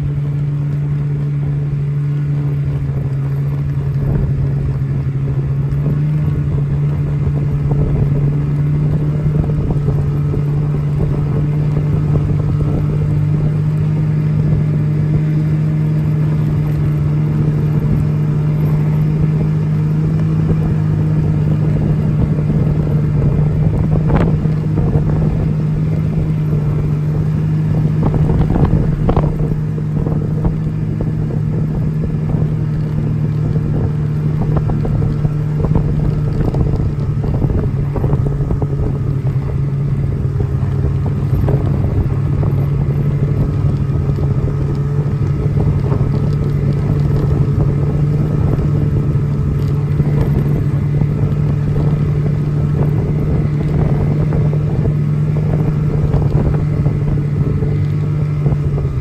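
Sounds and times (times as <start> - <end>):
snowmobile engine droning: 0.0 - 59.0.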